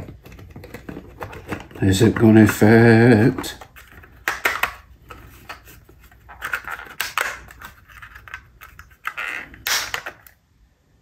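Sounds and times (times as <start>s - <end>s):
plastic clicks and creaks: 0.0s - 2.7s, 6.3s - 10.4s.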